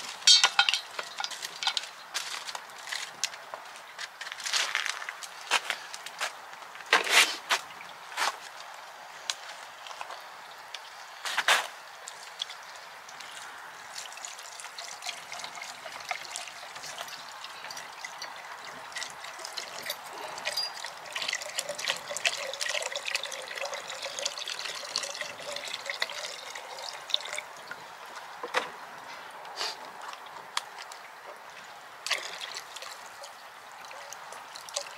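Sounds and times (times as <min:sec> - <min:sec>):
liquid pouring into a pot: 0:13.8 - 0:27.9, 0:32.0 - 0:34.9.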